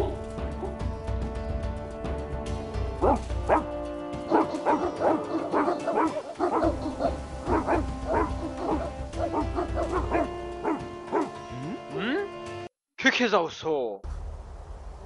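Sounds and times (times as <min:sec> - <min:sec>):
dogs barking: 0:00.0 - 0:00.8, 0:03.0 - 0:11.4
background music with held notes: 0:00.0 - 0:12.7.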